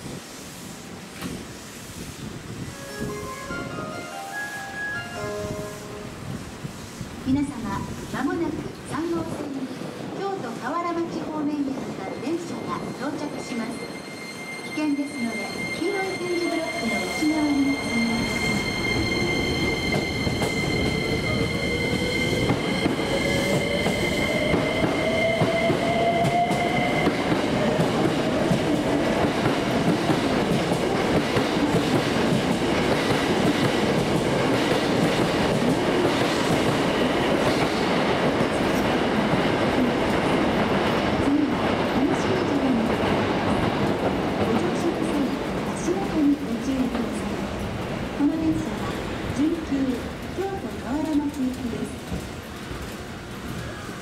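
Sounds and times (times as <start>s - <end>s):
steady high tones: 2.7s - 6.6s, 11.8s - 27.4s.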